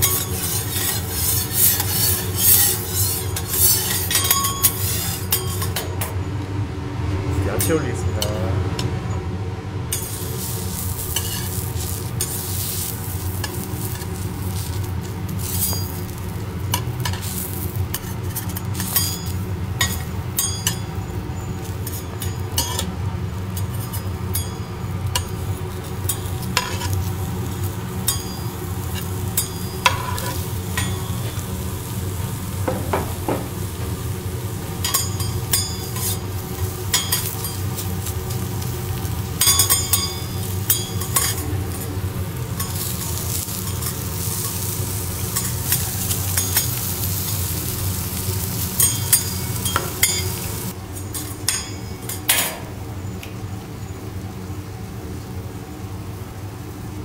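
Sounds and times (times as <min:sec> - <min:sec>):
vegetables sizzling on griddle: 0:00.0 - 0:05.8, 0:09.9 - 0:53.2
metal spatulas scraping: 0:00.0 - 0:05.9, 0:09.9 - 0:14.8, 0:15.4 - 0:20.9, 0:23.5 - 0:27.1, 0:28.1 - 0:31.6, 0:34.8 - 0:38.4, 0:39.4 - 0:42.0
low hum: 0:04.1 - 0:45.7.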